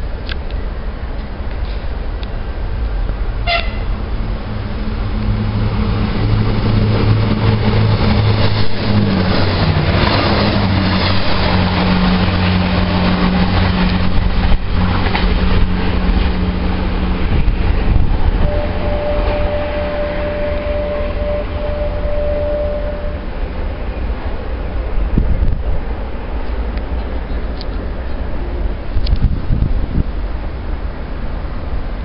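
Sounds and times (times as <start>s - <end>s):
train rumble and motor hum: 0.0s - 32.0s
train horn toot: 3.4s - 4.0s, 18.4s - 23.4s.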